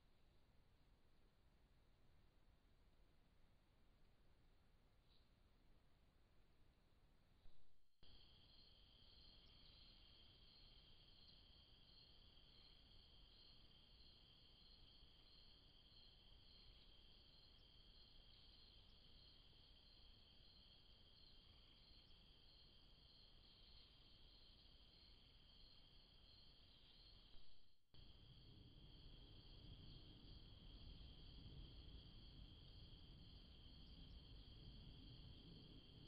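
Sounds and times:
crickets trilling: 8.1s - 36.0s.

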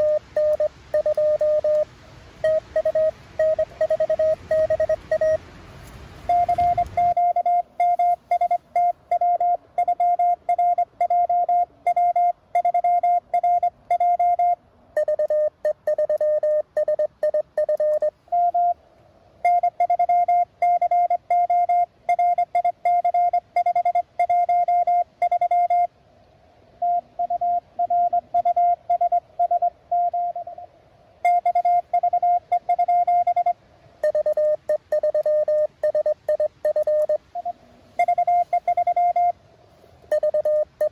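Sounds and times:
lower-pitched morse code: 0.0s - 5.5s, 6.1s - 18.8s, 19.4s - 25.9s, 26.8s - 39.4s, 40.0s - 40.9s
morse code tones: 0.0s - 5.5s, 6.1s - 18.8s, 19.4s - 25.9s, 26.8s - 39.4s, 40.0s - 40.9s.

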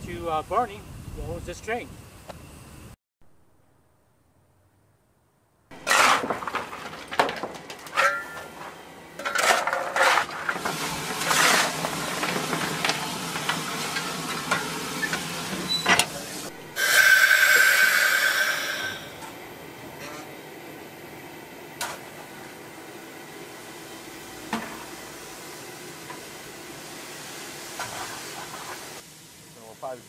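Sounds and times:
coal shovel clanking and scraping: 5.7s - 16.2s, 24.4s - 25.0s, 27.8s - 28.8s
steam hissing: 10.4s - 30.0s.

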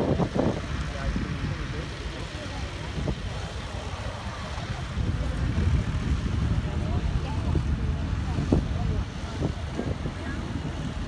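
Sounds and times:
tractor diesel engine under load: 0.0s - 11.0s
wind on microphone: 0.0s - 11.0s.

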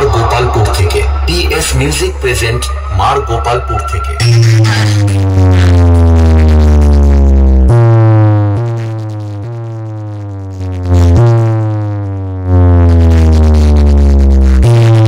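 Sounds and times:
synth tone sliding down: 0.0s - 5.6s
deep sustained bass notes: 0.0s - 13.4s.

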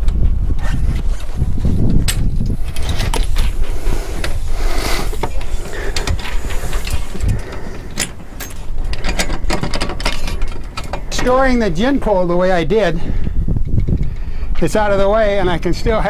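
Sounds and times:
wind rumble on microphone: 0.0s - 16.0s
rattling clicks: 2.0s - 12.2s.

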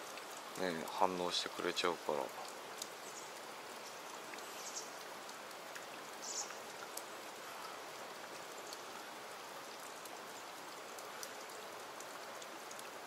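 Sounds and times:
stream trickling over rock: 0.0s - 13.0s
faint ticks: 2.4s - 9.1s, 9.7s - 13.0s.

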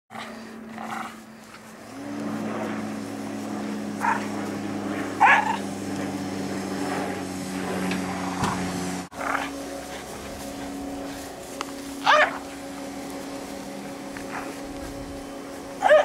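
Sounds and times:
steady motor hum: 0.1s - 16.0s
dog barking: 4.0s - 4.3s, 5.2s - 5.6s, 12.0s - 12.4s, 15.8s - 16.0s.

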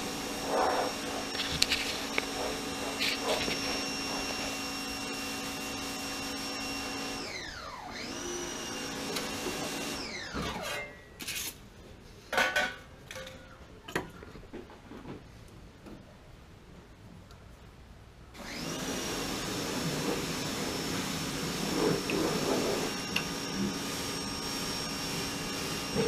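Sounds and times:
electric motor whining: 0.0s - 10.4s, 20.3s - 26.0s.

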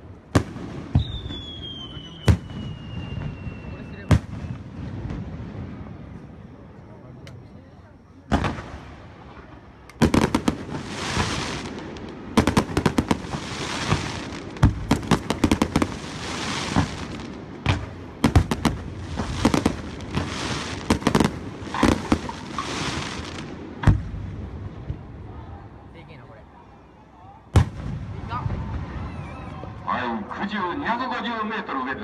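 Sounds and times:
fireworks bangs: 0.0s - 6.6s, 8.2s - 25.4s, 27.5s - 31.4s
crackling hiss of falling stars: 8.5s - 25.1s.

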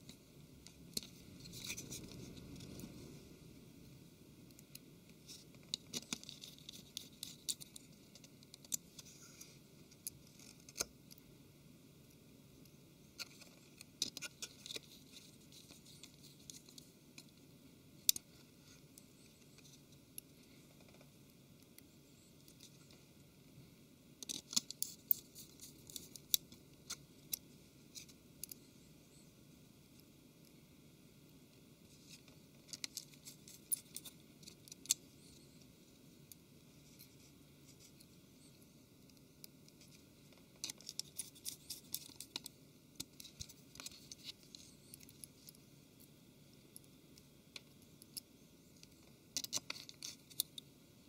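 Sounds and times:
screwdriver clicks and scratching: 24.2s - 27.4s, 40.6s - 45.6s, 47.6s - 50.6s.

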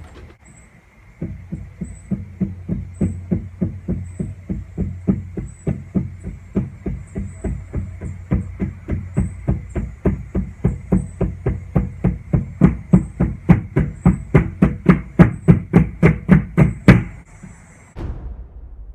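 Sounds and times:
drum struck with sticks: 18.0s - 18.9s.

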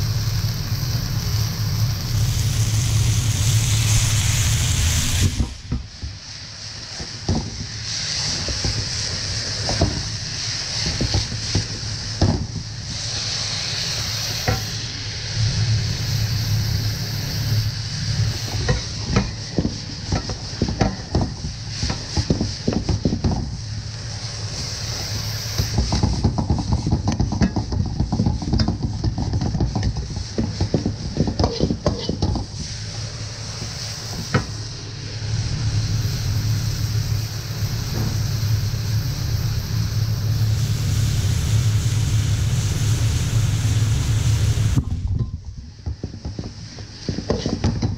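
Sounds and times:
low hum: 0.0s - 22.1s, 32.4s - 45.8s
vegetables sizzling in a wok: 0.0s - 47.9s.

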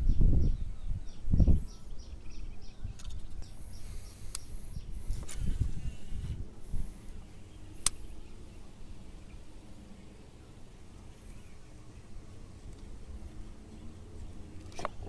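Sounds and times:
wind rumbling on microphone: 0.0s - 10.4s
sharp clicks: 7.8s - 8.1s.

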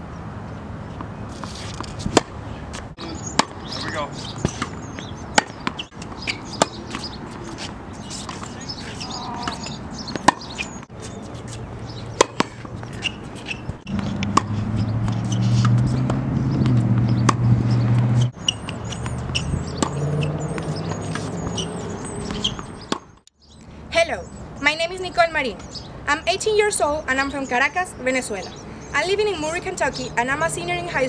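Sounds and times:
small birds chirping: 0.5s - 31.0s
tennis ball struck by racket: 1.3s - 3.6s, 4.2s - 10.8s, 11.4s - 23.2s.

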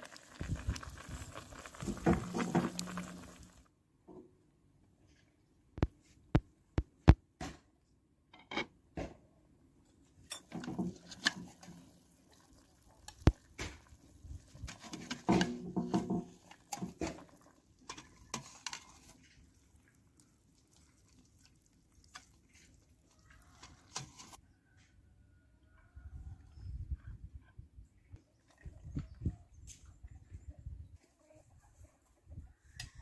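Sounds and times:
metal spoon scraping a pot: 14.5s - 19.4s, 23.5s - 24.4s.

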